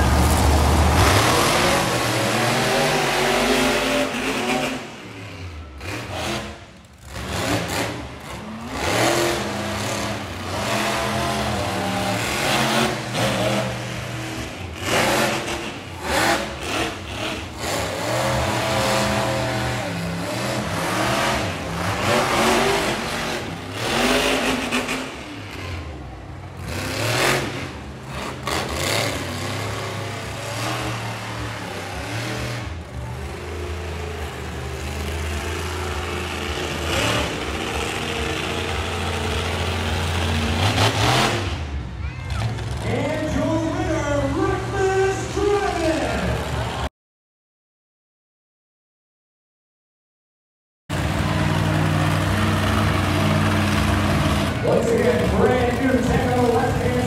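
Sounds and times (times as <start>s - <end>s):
monster truck engines revving: 0.0s - 46.9s, 50.9s - 57.0s.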